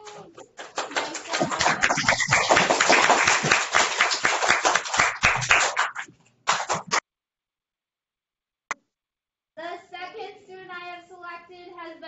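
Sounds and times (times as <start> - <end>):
children clapping: 0.0 - 7.0.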